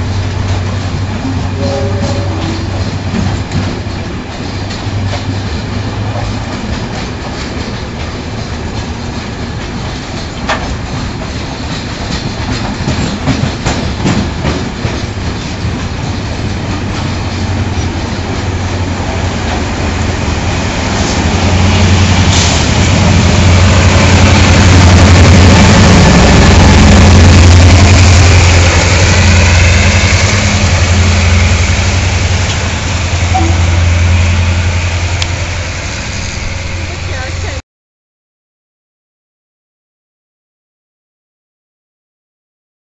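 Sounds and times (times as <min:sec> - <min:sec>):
locomotive engine hum: 0:00.0 - 0:37.6
train wheels clacking over rail joints: 0:00.1 - 0:33.7.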